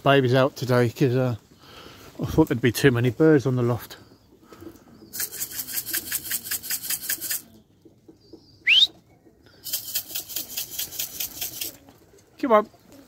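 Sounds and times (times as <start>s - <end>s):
pigeon wings fluttering: 5.1s - 8.0s, 9.6s - 13.0s
short rising whistle: 8.6s - 8.9s.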